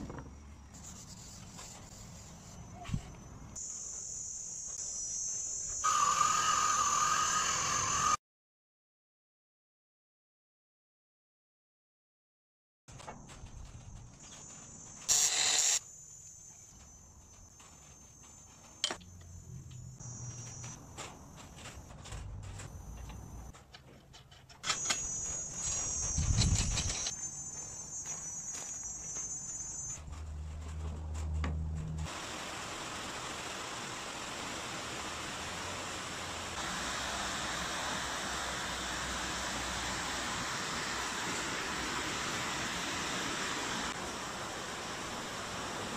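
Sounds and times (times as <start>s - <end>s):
crickets chirping: 0.0s - 8.2s, 15.8s - 23.6s, 24.7s - 30.1s
rushing hiss: 5.8s - 8.2s, 32.1s - 45.9s.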